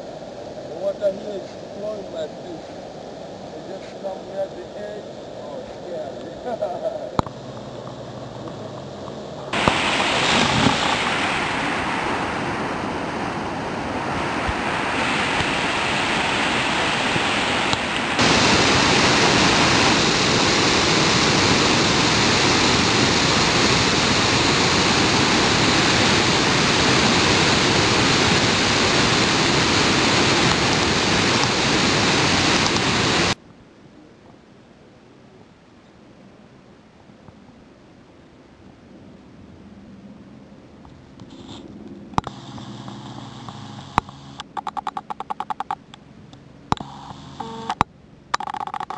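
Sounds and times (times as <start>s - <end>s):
waterfall rushing: 0.0s - 33.4s.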